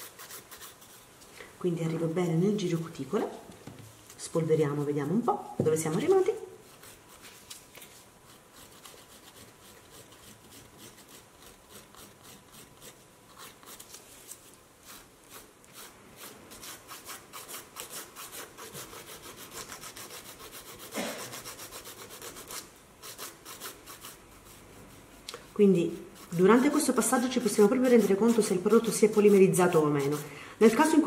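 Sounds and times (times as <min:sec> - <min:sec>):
nail file rasping: 0:14.9 - 0:24.2, 0:26.2 - 0:31.0.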